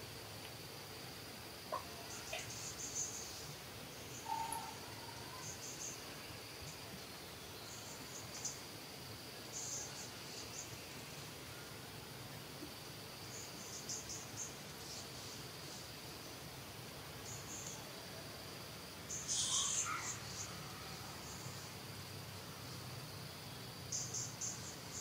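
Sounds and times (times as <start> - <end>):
insect drone: 0.0 - 25.0
high chirping: 19.1 - 20.5.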